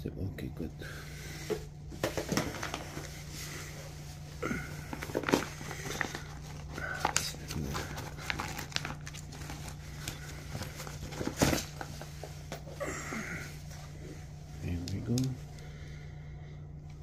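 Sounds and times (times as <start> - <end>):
nylon bag rustling: 2.2 - 15.3.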